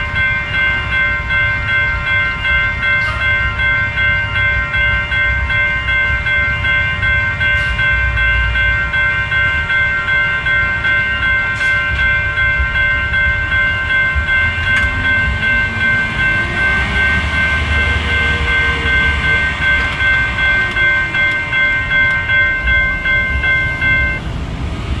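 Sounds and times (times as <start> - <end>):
crossing warning bell dinging: 0.0 - 25.0
diesel truck engine running: 12.0 - 25.0.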